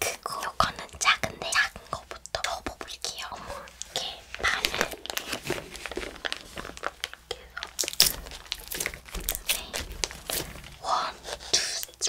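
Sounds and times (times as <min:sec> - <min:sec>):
plastic film crackling as peeled: 0:03.6 - 0:12.0.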